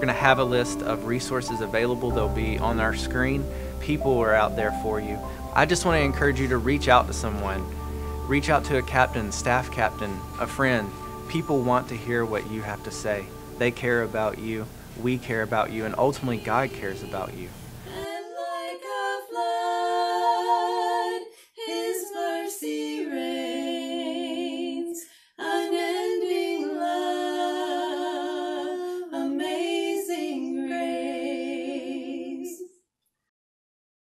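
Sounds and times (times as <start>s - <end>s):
two women singing in harmony: 15.7s - 32.7s.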